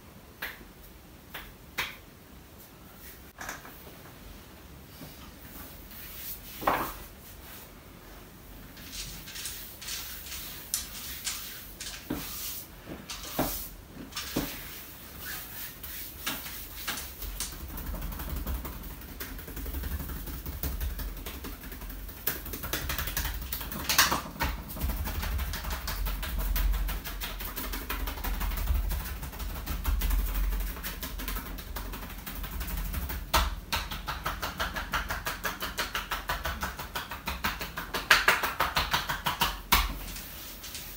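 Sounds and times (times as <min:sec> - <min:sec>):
hands rubbing skin: 0:08.8 - 0:17.6, 0:35.2 - 0:40.9.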